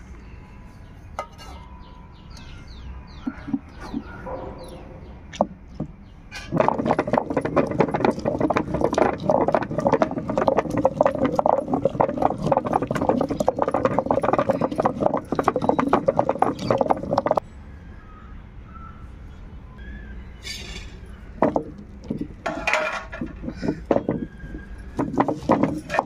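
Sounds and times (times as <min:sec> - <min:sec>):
stone-on-stone grinding: 0:06.4 - 0:17.4, 0:21.4 - 0:26.0.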